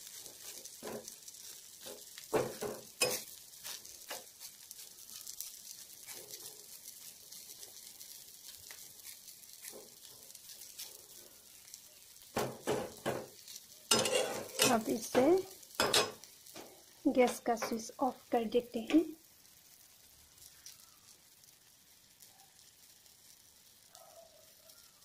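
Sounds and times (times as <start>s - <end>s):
omelette sizzling in oil: 0.0s - 25.0s
metal spatula scraping pan: 1.8s - 3.4s, 13.9s - 16.2s.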